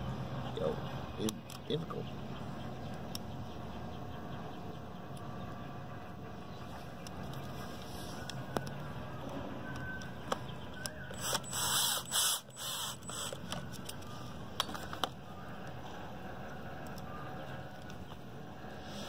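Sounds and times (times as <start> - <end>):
cordless drill driving a screw: 11.2 - 13.4.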